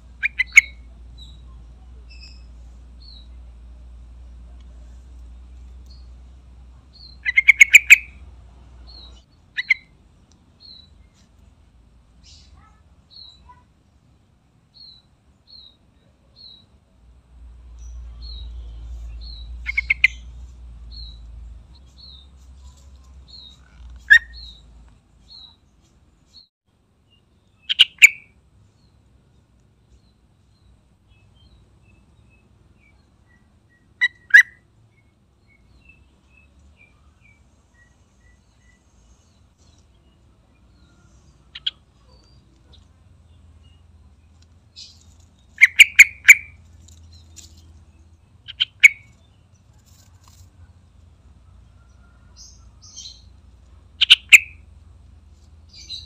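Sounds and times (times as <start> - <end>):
bird chattering calls: 0.2 - 1.4, 7.0 - 8.2, 8.9 - 10.0, 19.2 - 21.2, 23.3 - 24.7, 27.6 - 28.3, 41.5 - 42.3, 44.8 - 46.6, 48.5 - 49.1, 54.0 - 54.6.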